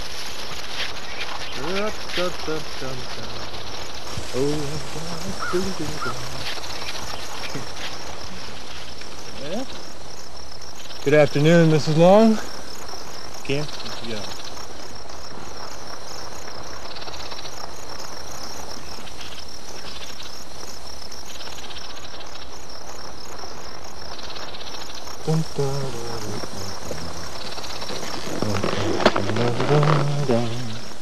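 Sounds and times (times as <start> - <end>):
insects chirping: 0.0 - 31.0
person's voice: 1.6 - 3.4, 4.2 - 6.5, 25.3 - 27.3, 27.9 - 30.8.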